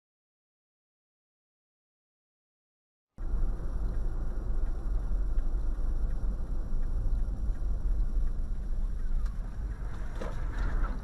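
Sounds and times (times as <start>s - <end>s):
car engine and tyre noise: 3.2s - 11.0s.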